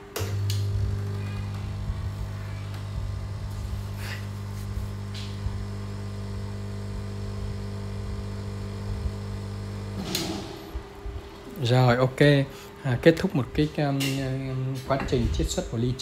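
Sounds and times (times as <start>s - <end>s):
espresso machine pump humming: 0.0s - 12.4s.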